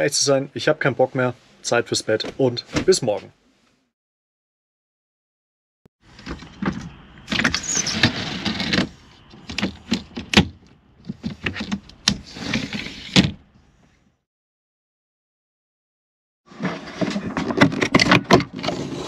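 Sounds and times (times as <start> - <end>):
blind sliding: 7.3 - 9.9, 11.3 - 13.3.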